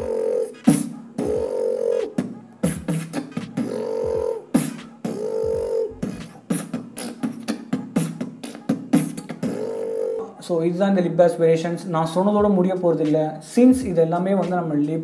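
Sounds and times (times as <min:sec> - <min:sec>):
beatboxed snare and hi-hat: 0:00.0 - 0:10.3, 0:12.2 - 0:15.0
beatboxed lip bass: 0:00.0 - 0:10.4.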